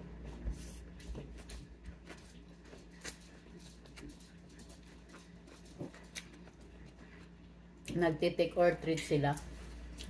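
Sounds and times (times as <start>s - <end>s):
steady low hum: 0.0s - 10.0s
person chewing: 0.6s - 7.9s.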